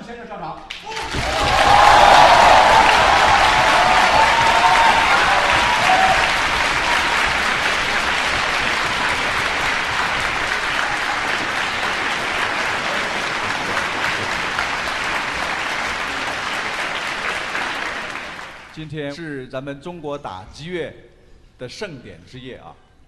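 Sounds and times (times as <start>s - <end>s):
audience applauding: 0.7s - 18.8s.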